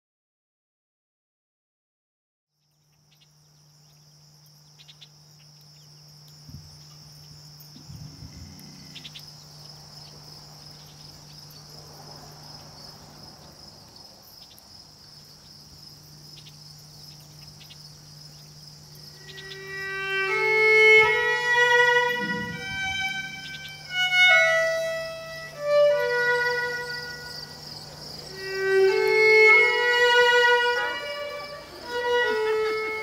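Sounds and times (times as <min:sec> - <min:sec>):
crickets chirping: 0:02.5 - 0:33.0
faint ticks: 0:02.6 - 0:11.7, 0:13.4 - 0:19.6
low hum: 0:05.6 - 0:12.0, 0:16.1 - 0:33.0.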